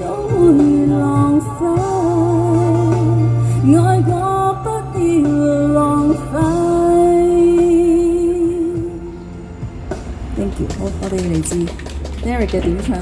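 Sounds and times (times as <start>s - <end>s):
woman singing into microphone: 0.0s - 9.0s.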